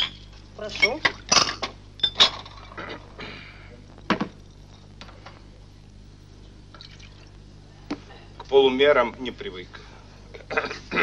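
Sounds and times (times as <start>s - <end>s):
glassware and spoon clinking: 0.0s - 2.9s.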